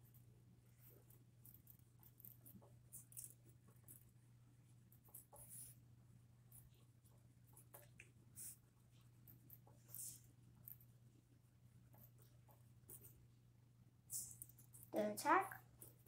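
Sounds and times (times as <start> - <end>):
pencil scratching on paper: 4.9 - 5.8, 6.5 - 10.7.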